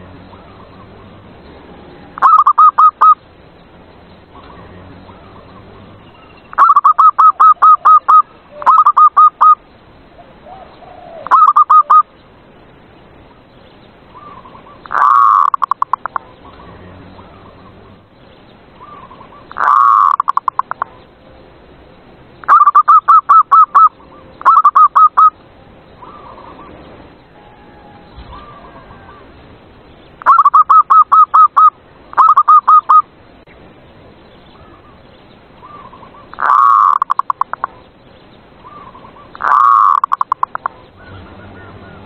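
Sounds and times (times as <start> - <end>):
dove cooing: 2.2 - 3.2, 6.6 - 9.6, 10.2 - 12.1, 14.2 - 16.6, 18.8 - 20.9, 22.5 - 25.3, 27.4 - 29.3, 30.2 - 33.0, 35.6 - 37.8, 38.6 - 42.0.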